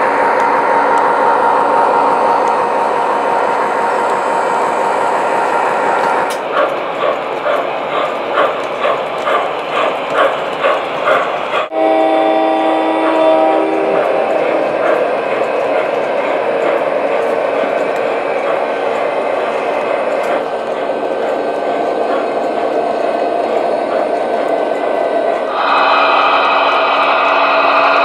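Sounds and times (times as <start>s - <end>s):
model trains rumbling on track: 0.0s - 28.0s
steam locomotive chuffing: 0.0s - 28.0s
train horn blast: 11.7s - 14.8s, 25.5s - 28.0s.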